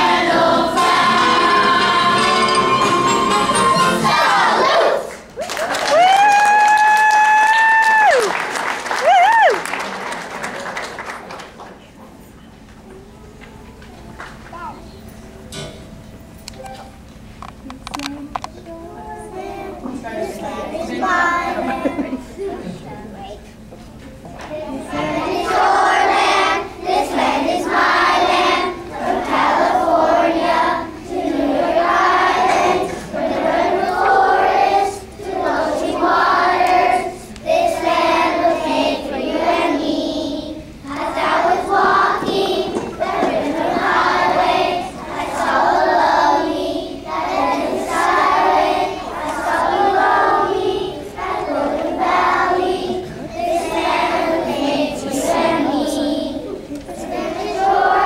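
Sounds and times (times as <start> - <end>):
children singing: 0.0 - 5.2, 24.6 - 58.0.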